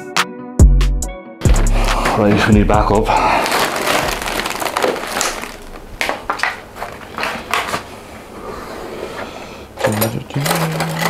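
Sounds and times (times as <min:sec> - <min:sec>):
food packaging rustling: 0:03.1 - 0:08.0.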